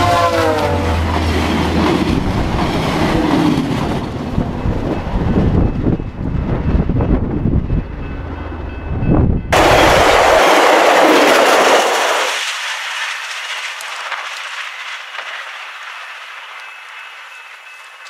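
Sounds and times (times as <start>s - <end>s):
passenger train rushing past: 0.0s - 18.0s.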